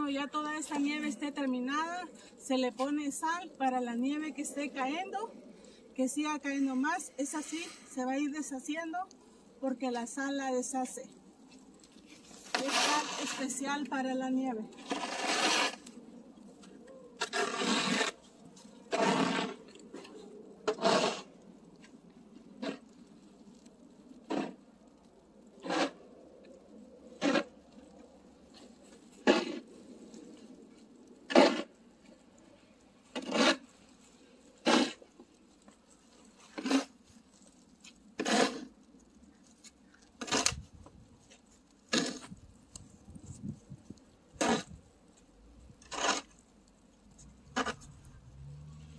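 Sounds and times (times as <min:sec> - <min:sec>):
snow shovel scraping on asphalt: 0:11.9 - 0:14.0, 0:14.7 - 0:16.0, 0:17.2 - 0:21.3, 0:24.3 - 0:24.6, 0:25.6 - 0:26.0, 0:27.2 - 0:27.5, 0:28.6 - 0:29.8, 0:31.3 - 0:31.8, 0:33.1 - 0:37.6, 0:38.2 - 0:38.8, 0:40.2 - 0:40.7, 0:41.9 - 0:42.4, 0:44.4 - 0:44.8, 0:45.8 - 0:46.4, 0:47.5 - 0:48.9.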